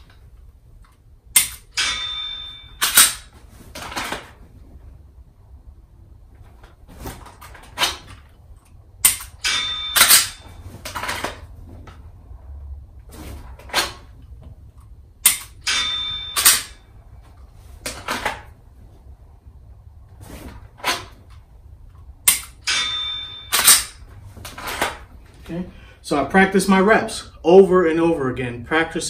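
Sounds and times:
pistol handling clacks and rustles: 0:00.0 - 0:04.5, 0:06.4 - 0:12.0, 0:13.3 - 0:18.6, 0:20.4 - 0:25.4.

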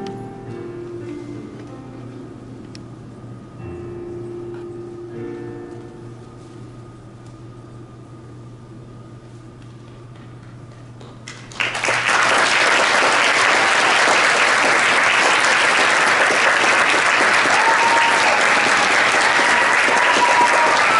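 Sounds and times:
faint low hum: 0:00.0 - 0:20.9
audience applause: 0:11.3 - 0:20.9.

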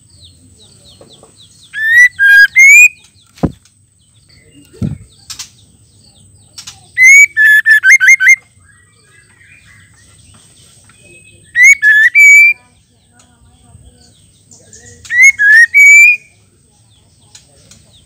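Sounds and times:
bird singing whistled phrases: 0:01.7 - 0:03.2, 0:07.0 - 0:09.7, 0:11.0 - 0:12.6, 0:14.7 - 0:16.3.

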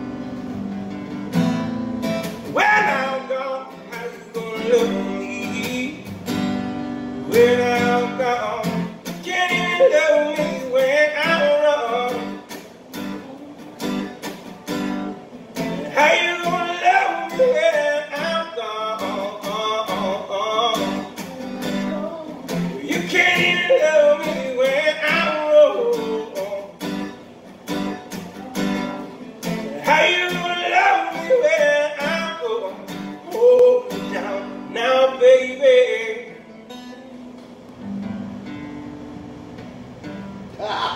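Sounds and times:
acoustic guitar strumming: 0:00.0 - 0:40.9
man singing: 0:02.5 - 0:06.1, 0:07.2 - 0:27.2, 0:28.2 - 0:36.6.

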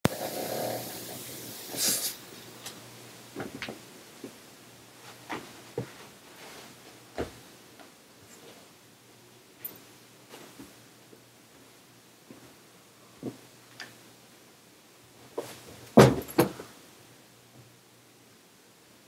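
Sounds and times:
hiss: 0:00.1 - 0:02.4.

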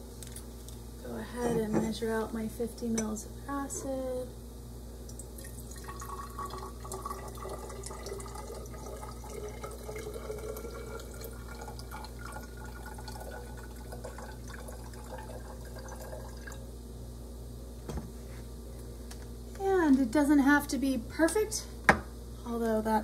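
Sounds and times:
liquid trickling into glass: 0:05.1 - 0:16.7
tablet fizzing in vinegar: 0:05.4 - 0:16.6.

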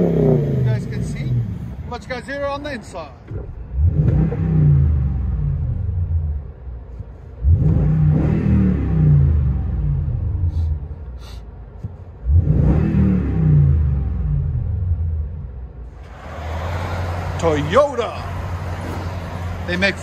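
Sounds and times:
engine revving with deep exhaust: 0:00.0 - 0:01.8, 0:03.7 - 0:06.4, 0:07.4 - 0:10.9, 0:12.2 - 0:15.6.

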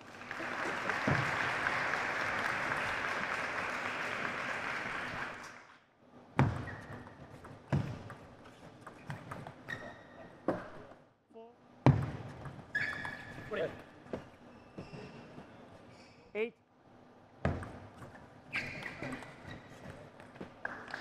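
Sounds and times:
applause: 0:00.0 - 0:05.8.

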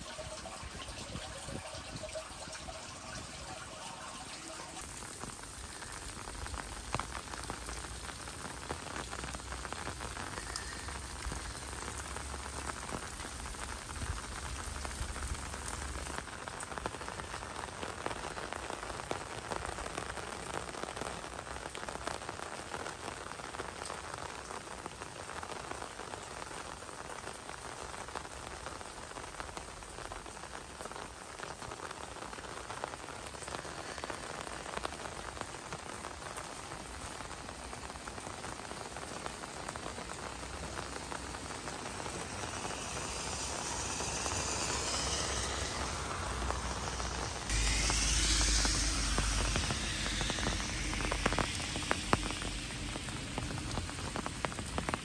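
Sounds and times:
low rumble: 0:00.0 - 0:05.0, 0:40.2 - 0:55.0
rain falling: 0:00.0 - 0:55.0.

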